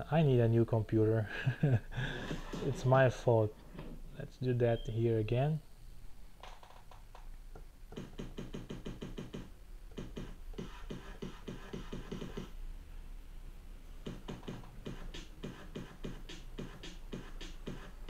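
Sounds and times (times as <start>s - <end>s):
drum sample hits: 7.9s - 12.5s, 14.0s - 18.0s.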